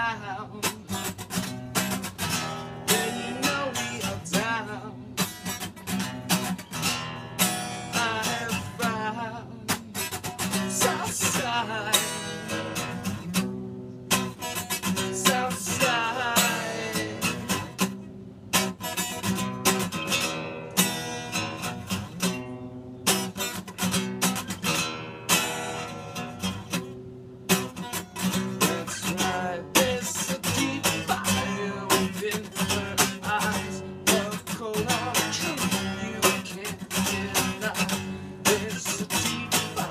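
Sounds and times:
man singing: 0.0s - 6.5s, 7.6s - 13.4s, 14.5s - 17.9s, 28.2s - 39.9s
acoustic guitar strumming: 0.0s - 39.9s.

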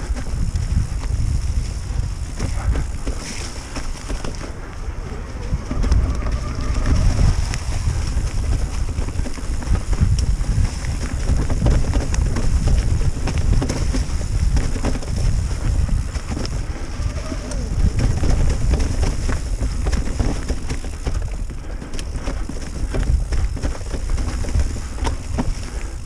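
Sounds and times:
bike clicks and rattles: 0.0s - 26.0s
wind buffeting microphone: 0.0s - 26.0s.

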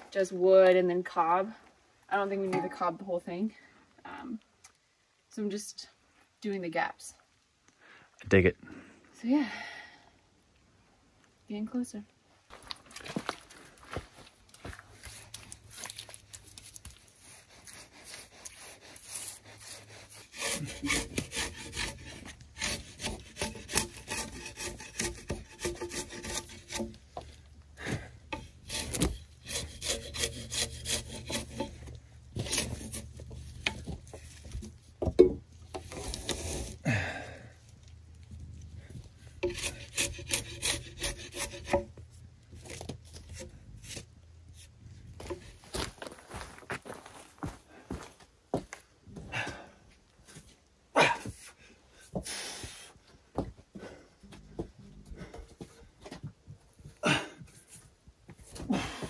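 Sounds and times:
hand saw cutting log: 17.3s - 27.0s, 28.3s - 34.7s, 35.7s - 36.8s, 39.4s - 42.0s, 42.6s - 45.6s.

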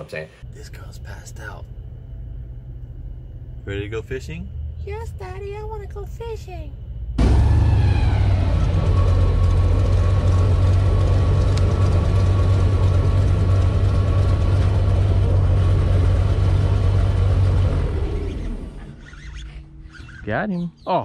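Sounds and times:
airboat engine and propeller: 7.2s - 20.0s.

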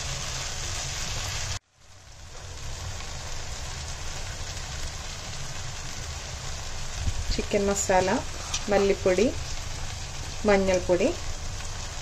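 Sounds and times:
vegetables sizzling in oil: 0.0s - 12.0s
spatula stirring in pan: 7.8s - 12.0s.

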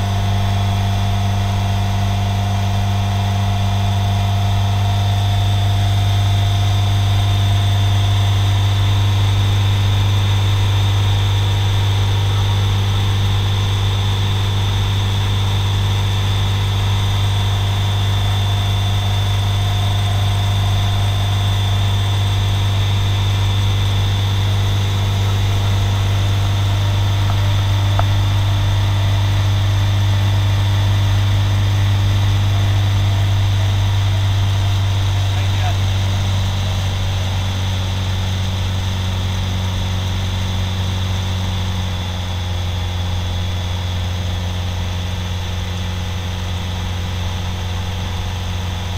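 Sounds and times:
aircraft engine and propeller humming: 0.0s - 48.9s.

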